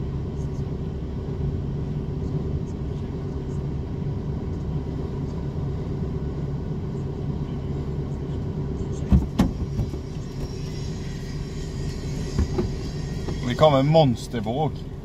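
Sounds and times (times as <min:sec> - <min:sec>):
low rumble inside car: 0:00.0 - 0:15.0.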